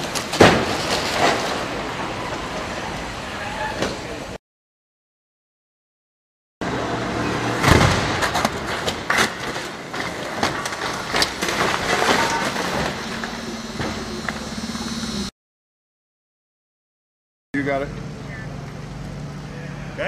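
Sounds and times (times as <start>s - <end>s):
car clattering impacts: 0.0s - 2.7s, 7.6s - 14.5s
car crash bang: 0.0s - 3.0s, 7.5s - 14.4s.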